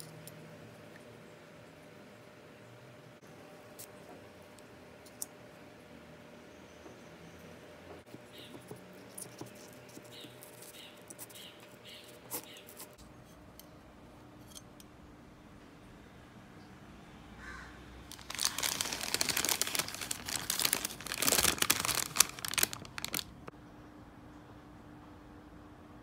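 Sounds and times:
paper bag and pastry crinkling: 18.1 - 23.5.

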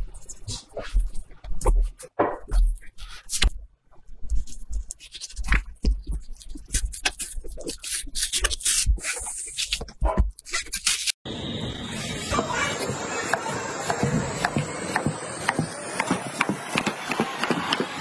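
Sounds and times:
knife scraping fish skin: 4.2 - 11.2.

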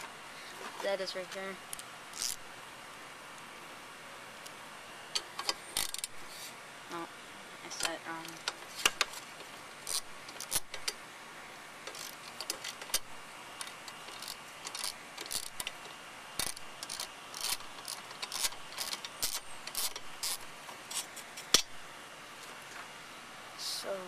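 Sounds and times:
ratchet wrench clicking: 2.1 - 2.4, 5.2 - 6.2, 9.8 - 11.0, 11.8 - 20.5.

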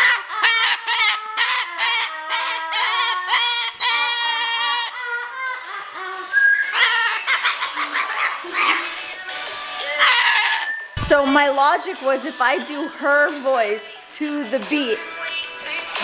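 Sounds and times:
cockatoo calling: 0.0 - 9.1, 9.8 - 11.1.

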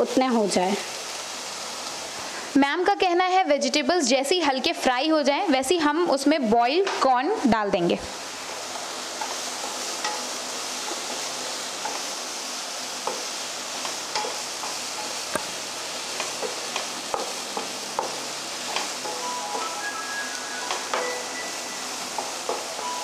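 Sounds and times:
vegetables sizzling in a frying pan: 0.0 - 23.0
spatula tapping a pan: 9.2 - 10.3, 13.0 - 15.5, 16.1 - 19.7, 20.6 - 21.2, 22.1 - 22.9.

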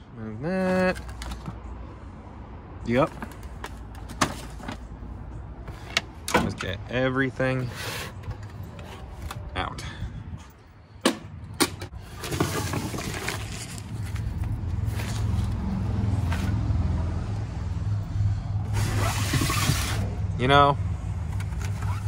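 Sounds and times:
engine low hum: 8.1 - 22.0.

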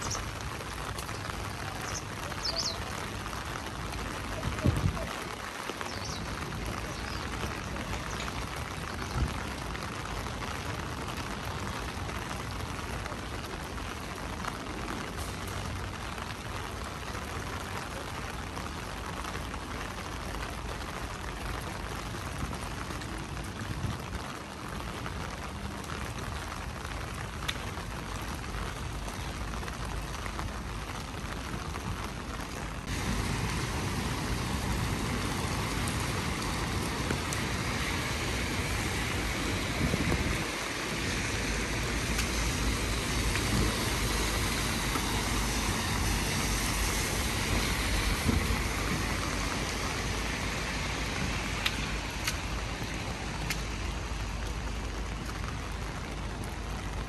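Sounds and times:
rain pattering: 0.0 - 57.0.

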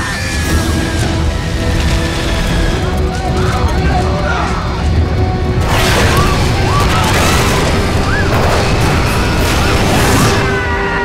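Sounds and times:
dramatic music: 0.0 - 11.0
loud explosion blast: 5.6 - 10.7
people screaming: 5.6 - 11.0.

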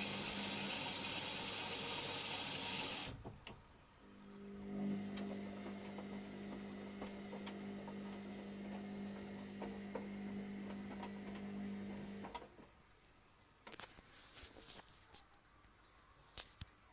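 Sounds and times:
washing machine humming: 0.0 - 3.2, 4.0 - 12.6.

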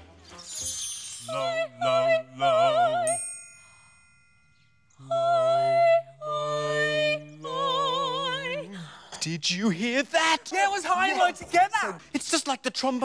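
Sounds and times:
bright chime ringing: 0.3 - 1.6
woman and man singing in harmony: 0.5 - 3.4, 5.0 - 9.2.

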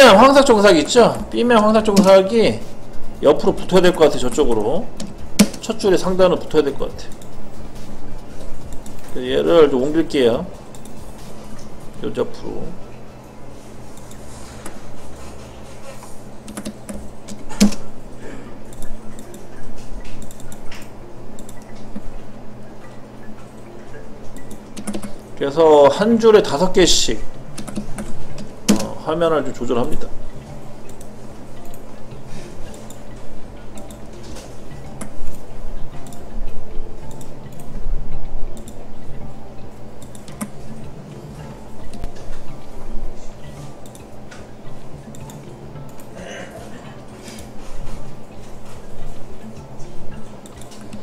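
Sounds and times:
keyboard and mouse clicks: 4.3 - 5.8, 6.7 - 7.4, 8.4 - 9.2, 10.6 - 11.8, 13.9 - 14.8, 15.4 - 18.0, 18.7 - 22.2, 22.8 - 26.0, 27.5 - 29.0, 30.8 - 31.9, 32.6 - 37.8, 38.5 - 38.9, 40.0 - 42.7, 43.4 - 46.2, 49.8 - 51.0.

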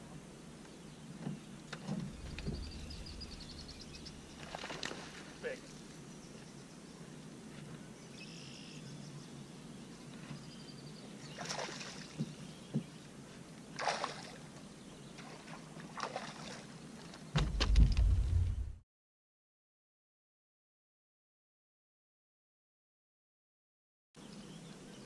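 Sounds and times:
loud low rumble: 2.1 - 4.5, 17.4 - 18.8
fish splashing at the surface: 2.5 - 5.3, 11.4 - 12.2, 13.8 - 14.4, 15.2 - 16.6.

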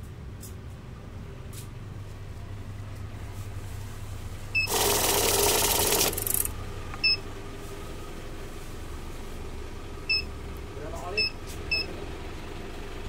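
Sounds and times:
money counter running: 4.6 - 6.6.

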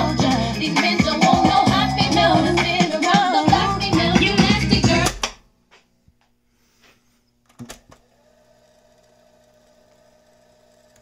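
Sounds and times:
boombox music: 0.0 - 5.4
cassette mechanism whirring: 7.4 - 11.0.

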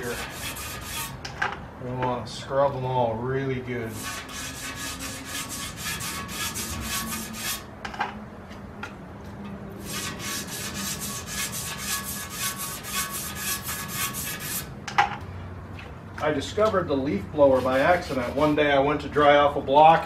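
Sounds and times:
brush scrubbing metal: 0.0 - 1.2, 3.8 - 7.7, 9.8 - 14.7, 16.6 - 18.8.

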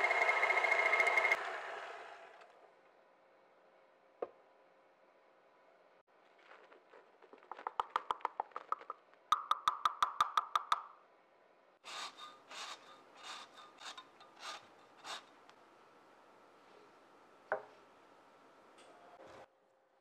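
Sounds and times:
lemon grated on zester: 11.9 - 15.3.

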